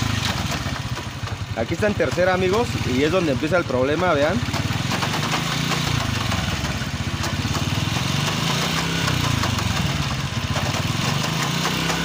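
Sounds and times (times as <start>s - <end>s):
motorcycle engine running: 0.0s - 12.0s
drive chain jerking: 4.4s - 12.0s.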